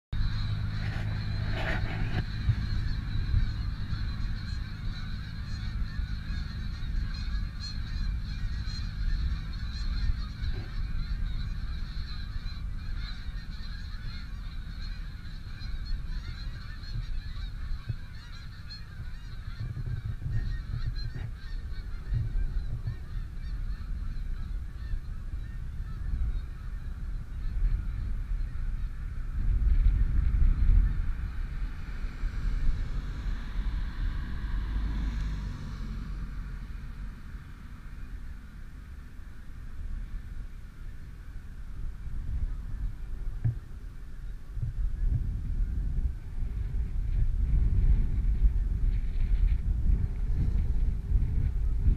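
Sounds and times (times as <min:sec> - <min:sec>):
low rumble: 0:00.1 - 0:51.9
geese honking: 0:00.2 - 0:41.6.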